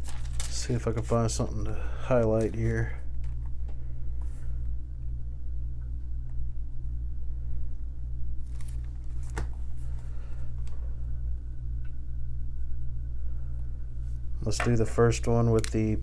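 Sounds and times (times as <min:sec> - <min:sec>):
paper rustling: 0:00.0 - 0:01.2, 0:08.4 - 0:10.1
steady low hum: 0:00.0 - 0:16.0.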